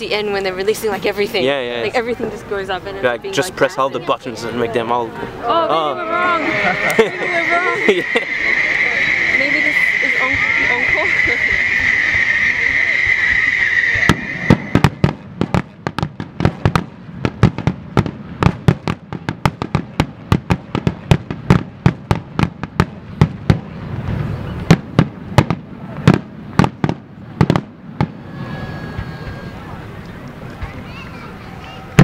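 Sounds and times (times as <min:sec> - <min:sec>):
high firework whistle: 0:06.3 - 0:15.5, 0:27.4 - 0:30.0
firework shells bursting: 0:07.7 - 0:29.4.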